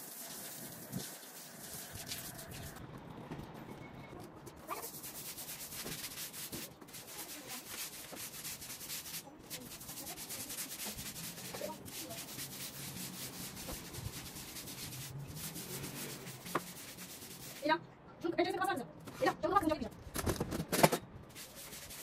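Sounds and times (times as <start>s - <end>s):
brush scrubbing hard floor: 4.7s - 17.7s, 21.3s - 22.0s.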